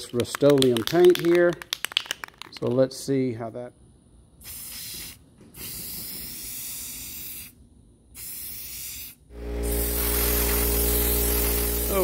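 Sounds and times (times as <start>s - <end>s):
spray paint can hissing: 4.4s - 12.0s
loud steady hum: 9.3s - 12.0s.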